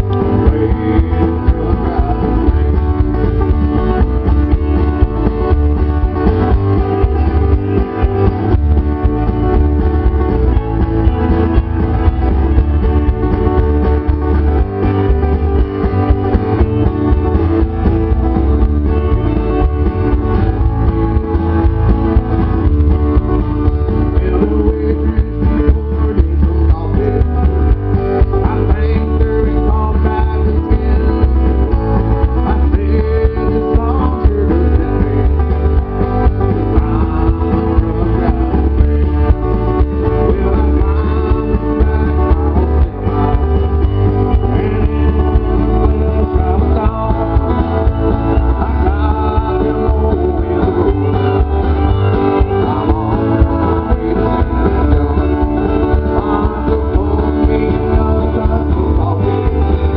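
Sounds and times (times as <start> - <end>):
bass line: 0.0 - 59.9
electric guitar: 0.0 - 59.9
man singing: 0.0 - 59.9.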